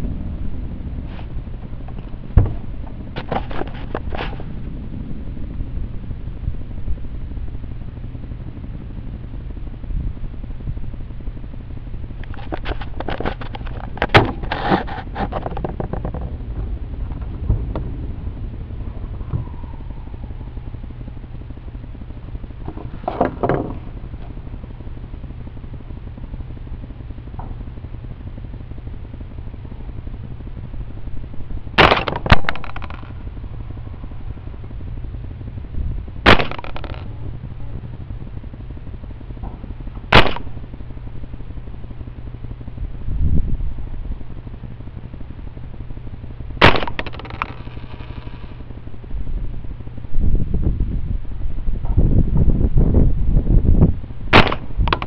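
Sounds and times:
rifle shots: 0:31.8 - 0:33.0, 0:36.2 - 0:37.0, 0:40.1 - 0:40.5, 0:46.6 - 0:48.4, 0:54.3 - 0:55.0.

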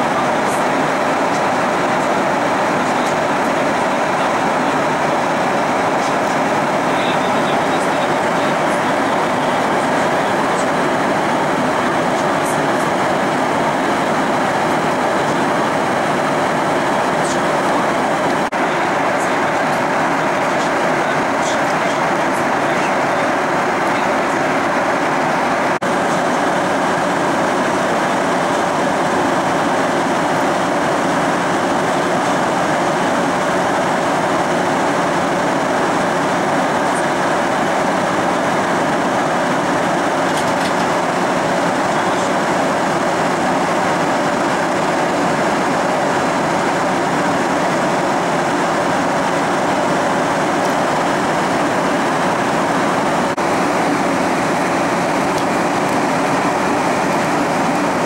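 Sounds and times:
airliner cabin engine hum: 0:00.0 - 0:58.0.

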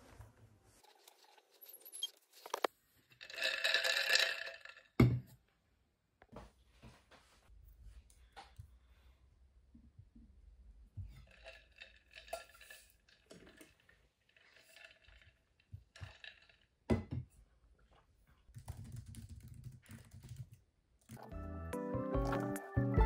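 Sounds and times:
typing on laptop keyboard: 0:18.5 - 0:21.2.

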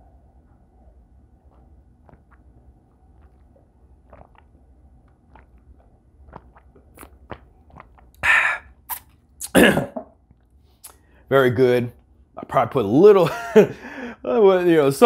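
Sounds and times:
man drinking and swallowing: 0:01.4 - 0:11.1
man breathing out: 0:08.2 - 0:08.7, 0:13.8 - 0:14.2.

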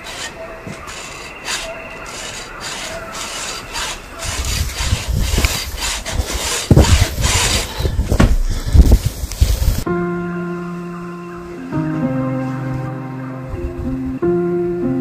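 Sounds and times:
scraping and rubbing noise: 0:00.0 - 0:09.9.

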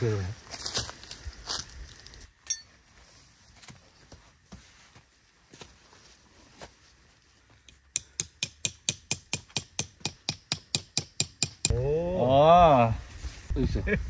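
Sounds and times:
tent peg hammering: 0:07.7 - 0:11.8.

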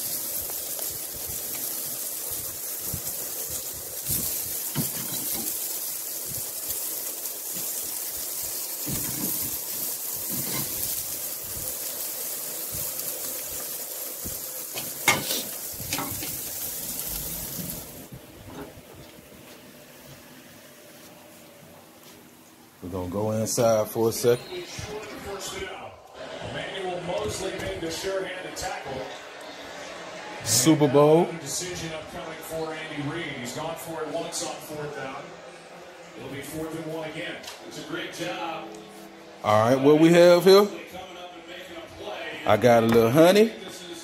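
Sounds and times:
fish sizzling on a grill: 0:00.0 - 0:18.1
metal utensils scraping grate: 0:04.6 - 0:05.6, 0:10.2 - 0:11.0, 0:14.8 - 0:16.5.

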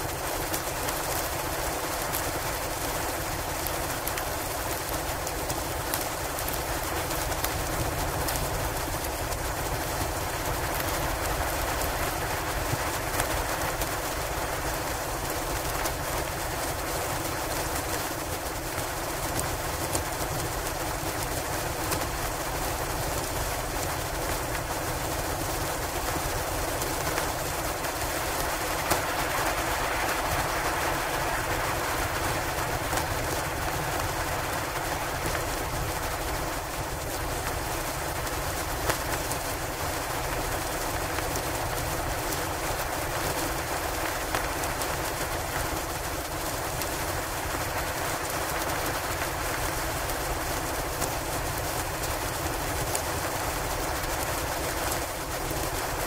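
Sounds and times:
wind and blowing snow: 0:00.0 - 0:56.0.

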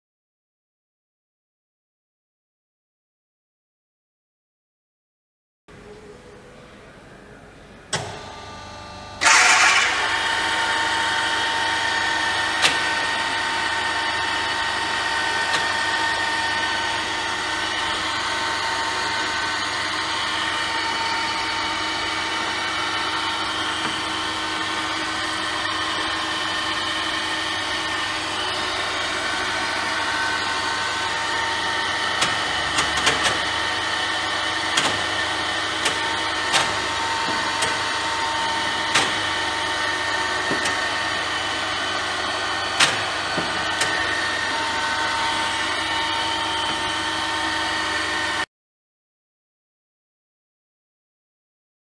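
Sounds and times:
milling machine whining: 0:08.0 - 0:48.4.

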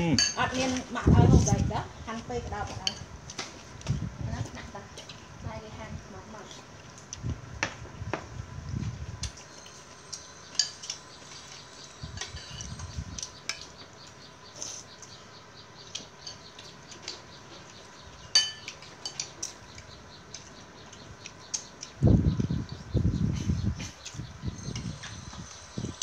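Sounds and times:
metal spoon clinking on ceramic bowl: 0:18.3 - 0:19.3.

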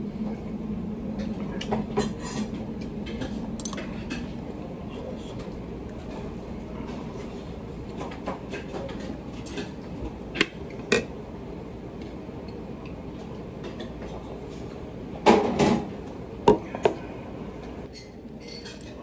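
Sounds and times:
tableware clattering: 0:17.9 - 0:19.0.

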